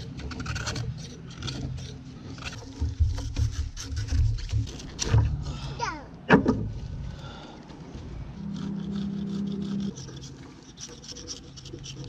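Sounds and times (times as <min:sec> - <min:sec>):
knife scraping stalk: 0:00.0 - 0:05.2, 0:08.4 - 0:12.0
low hum: 0:05.0 - 0:10.6.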